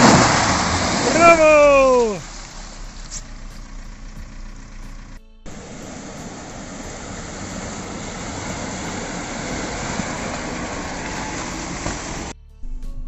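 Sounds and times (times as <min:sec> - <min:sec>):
dense rush of noise: 0:00.0 - 0:02.3
suv engine crawling over rocks: 0:00.0 - 0:12.3.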